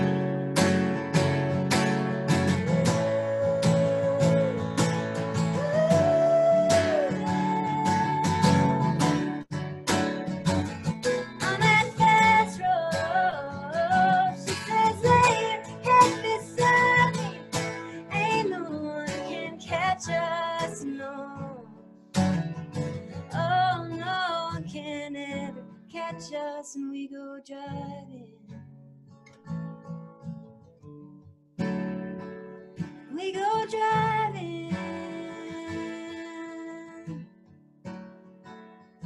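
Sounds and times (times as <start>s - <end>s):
acoustic guitar strumming: 0.0s - 24.8s, 28.6s - 39.0s
woman singing: 2.3s - 9.4s, 11.4s - 21.8s, 23.2s - 28.6s, 33.1s - 37.3s.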